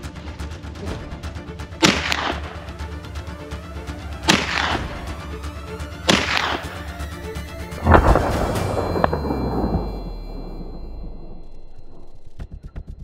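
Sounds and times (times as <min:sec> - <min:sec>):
background music: 0:00.0 - 0:13.0
shotgun shots: 0:01.8 - 0:02.8, 0:04.2 - 0:05.1, 0:06.1 - 0:06.9.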